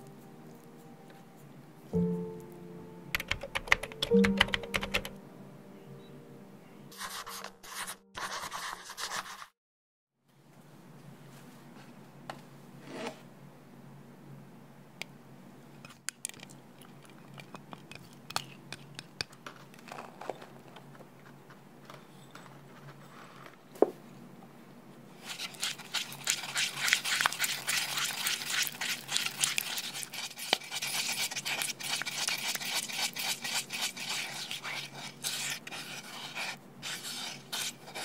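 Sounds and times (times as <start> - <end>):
utensil scraping a wooden bowl: 25.2 - 38.0.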